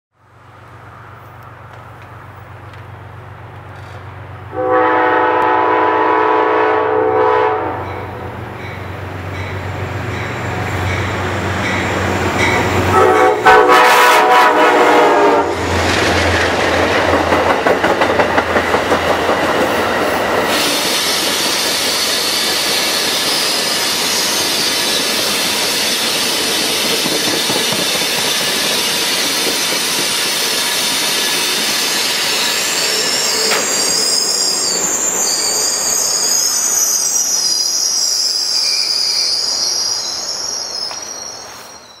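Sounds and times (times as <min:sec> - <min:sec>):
train wheels on rails: 0:00.4 - 0:06.1, 0:07.6 - 0:42.0
locomotive horn chord: 0:04.5 - 0:08.3, 0:12.9 - 0:15.7
high-pitched wheel squeal: 0:20.5 - 0:42.0.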